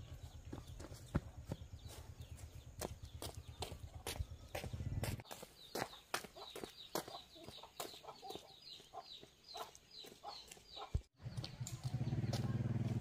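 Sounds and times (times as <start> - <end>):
chickens clucking: 5.8 - 11.0.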